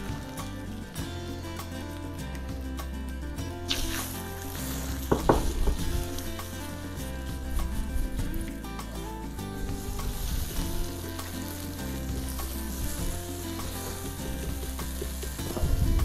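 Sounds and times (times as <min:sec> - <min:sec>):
egg sizzling in hot oil: 0:03.5 - 0:09.0, 0:09.6 - 0:16.0.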